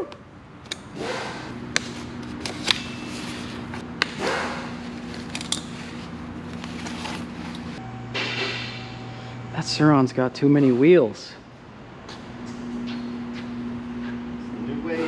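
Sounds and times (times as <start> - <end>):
steady low hum: 0.0 - 15.0
tools and bike parts clicking: 0.6 - 3.1, 4.0 - 6.1.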